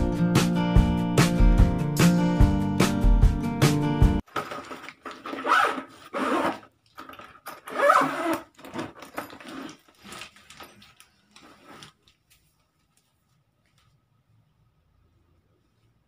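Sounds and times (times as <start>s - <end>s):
zipper rasping shut: 4.4s - 10.3s.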